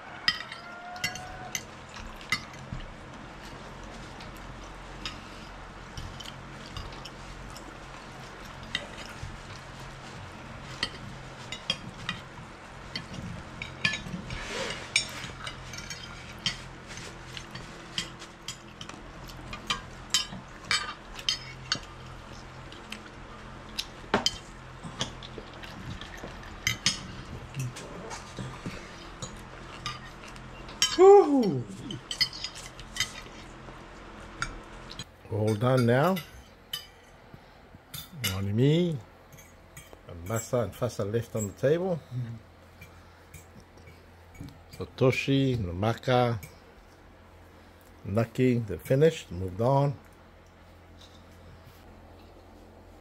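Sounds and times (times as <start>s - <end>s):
low steady hum: 0.0s - 53.0s
cutlery clinking on plates: 0.2s - 2.7s.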